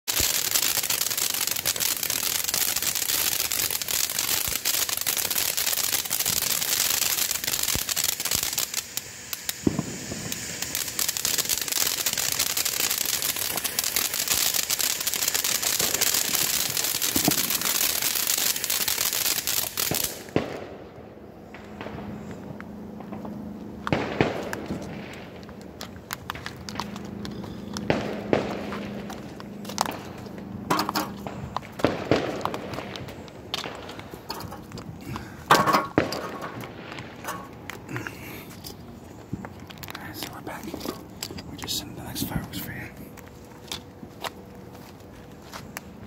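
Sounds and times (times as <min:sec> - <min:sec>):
firework hissing and crackling: 0:00.1 - 0:20.8, 0:21.4 - 0:43.8
firework pops: 0:03.8 - 0:19.0, 0:23.0 - 0:38.7.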